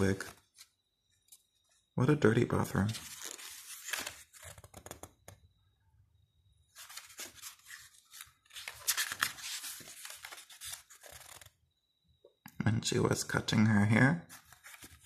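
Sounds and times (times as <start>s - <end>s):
book pages rustling: 2.7s - 5.1s, 6.8s - 11.5s, 14.3s - 15.0s.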